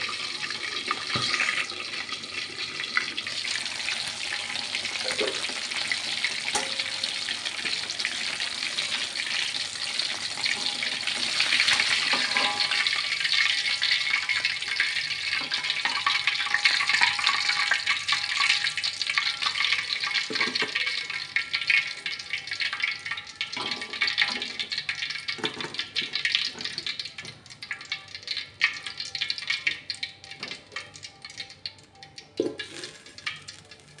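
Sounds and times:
chicken deep-frying in oil: 0.0 - 34.0
metal knocking on wok: 6.2 - 7.7, 10.4 - 13.8.

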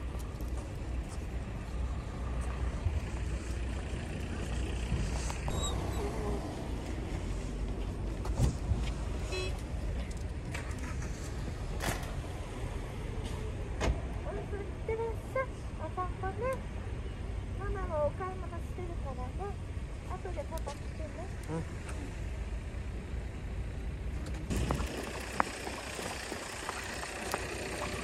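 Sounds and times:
low rumble of cars: 0.0 - 28.0
brief high squeaks: 5.5 - 6.2.

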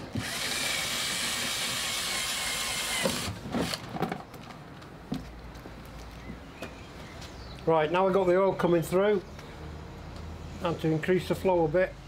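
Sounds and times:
cordless drill whirring: 0.0 - 3.8.

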